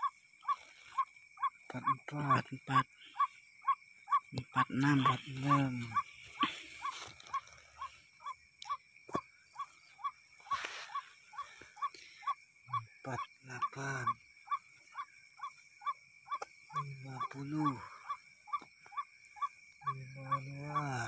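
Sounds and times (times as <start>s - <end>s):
faint high insect-like tone: 0.0s - 21.0s
bird calling repeated note: 3.0s - 7.9s
low voices: 4.3s - 7.1s.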